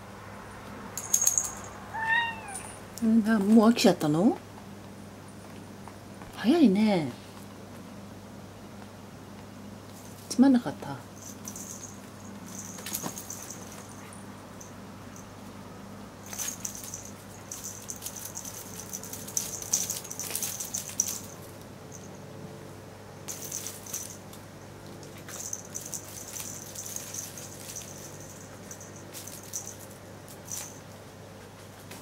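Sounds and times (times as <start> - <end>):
cat toy rattling and rustling: 1.0 - 2.8, 9.8 - 10.3, 11.0 - 15.4, 16.2 - 22.3, 23.2 - 32.0.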